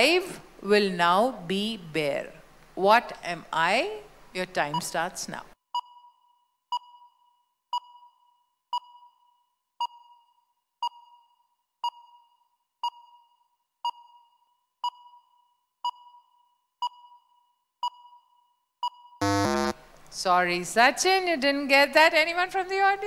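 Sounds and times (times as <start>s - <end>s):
countdown timer beeping: 18.8s - 19.8s.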